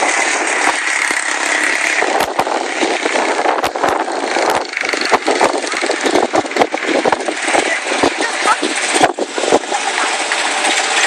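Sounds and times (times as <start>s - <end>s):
engine crackles: 0.0s - 11.0s
small race car engines buzzing: 0.0s - 11.0s
spectators talking: 7.4s - 8.9s.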